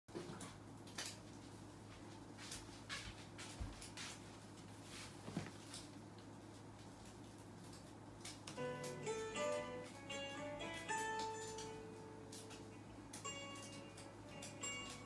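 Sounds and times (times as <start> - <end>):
steady low hum: 0.1 - 15.0.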